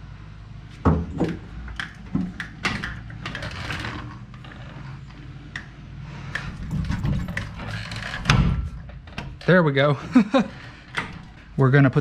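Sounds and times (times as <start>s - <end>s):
metal clunks and clatters: 6.5s - 11.6s.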